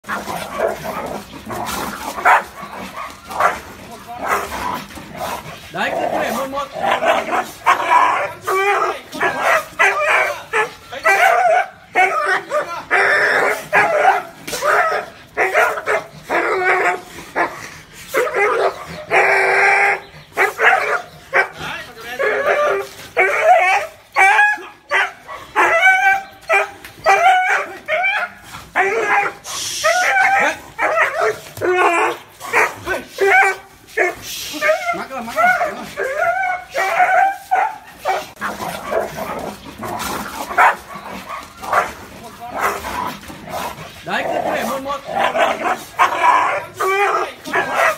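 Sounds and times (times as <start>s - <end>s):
dog barking: 2.2s - 3.6s, 9.2s - 12.7s, 20.4s - 21.6s, 22.4s - 34.2s, 36.4s - 39.4s, 40.5s - 42.0s, 47.5s - 47.9s.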